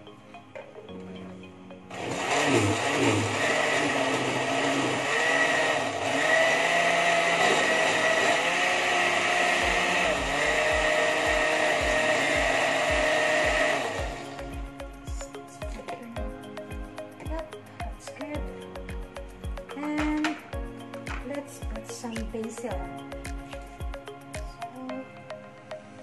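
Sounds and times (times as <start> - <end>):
blender running: 1.9 - 15.2.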